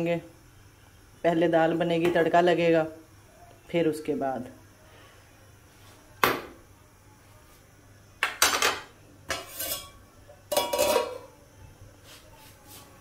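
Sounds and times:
pot lid clanking: 8.3 - 11.3.

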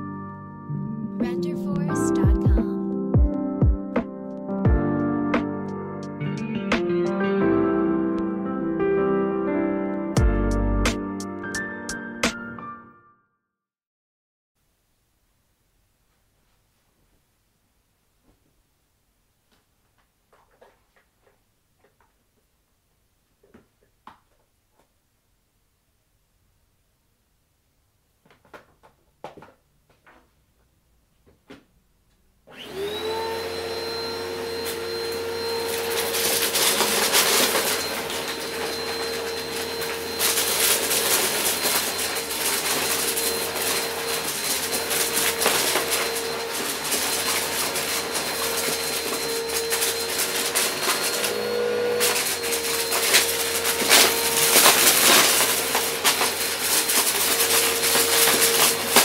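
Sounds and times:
vacuum cleaner motor whine: 32.5 - 59.0
vacuum crunching cardboard pieces: 32.6 - 59.0.

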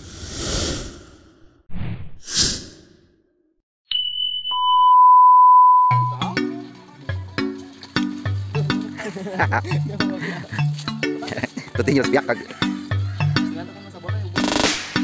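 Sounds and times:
whooshes: 0.0 - 3.1
short high beep: 3.9 - 6.2
steady lower beep: 3.9 - 6.4
music with bass line: 5.9 - 15.0.

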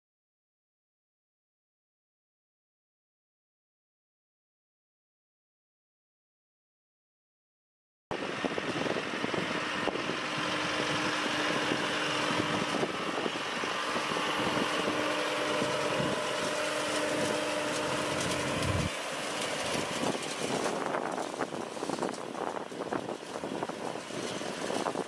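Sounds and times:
tractor engine running: 8.2 - 25.0.

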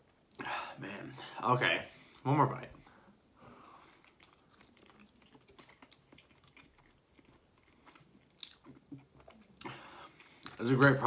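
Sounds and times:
person biting and chewing: 3.8 - 10.6.

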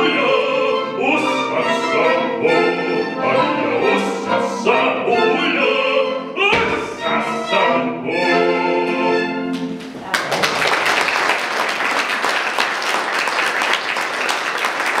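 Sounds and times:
violins and accordion chord: 0.0 - 9.8
audience applause: 9.9 - 15.0.

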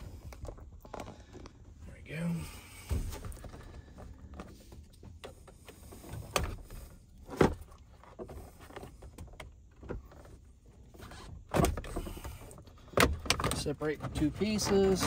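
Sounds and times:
plastic clicks and creaks: 7.7 - 15.0.

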